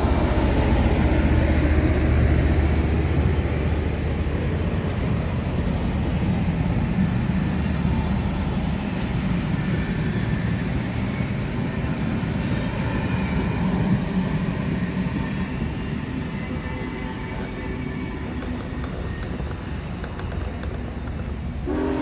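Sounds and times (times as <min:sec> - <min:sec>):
train wheels rumbling on rails: 0:00.0 - 0:22.0
faint wheel squeal: 0:09.5 - 0:12.0, 0:15.1 - 0:21.7.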